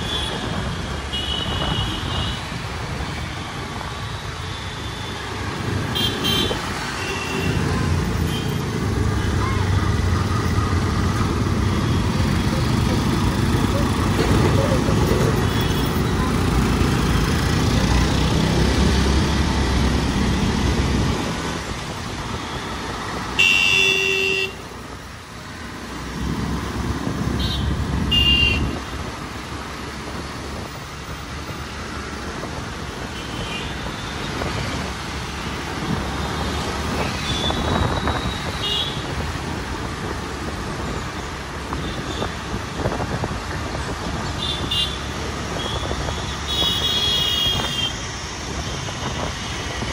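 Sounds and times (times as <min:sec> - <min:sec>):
traffic rumble: 0:00.0 - 0:49.9
vehicle horns honking: 0:05.9 - 0:07.6, 0:23.4 - 0:24.6, 0:27.4 - 0:28.8, 0:44.4 - 0:48.0.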